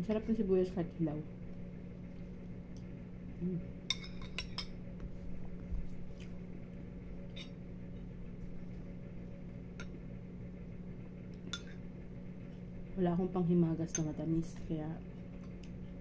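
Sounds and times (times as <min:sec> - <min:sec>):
metal spoon clinking on ceramic bowl: 0:03.9 - 0:04.8.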